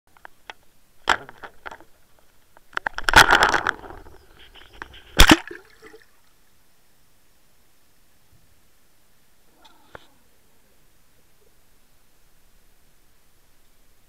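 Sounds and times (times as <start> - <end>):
water splashing: 2.8 - 6.3.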